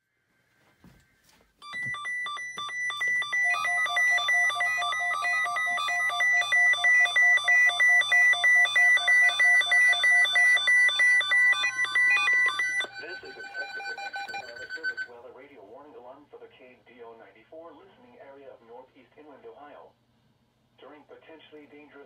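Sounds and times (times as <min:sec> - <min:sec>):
weather radio alert beeps: 0:01.6 - 0:15.1.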